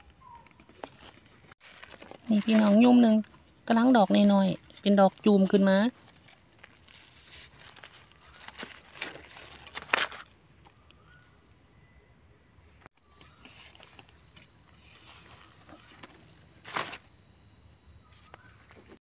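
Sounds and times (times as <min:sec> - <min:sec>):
insects calling: 0:00.0 - 0:19.0
hands rustling dry leaves: 0:03.8 - 0:10.2.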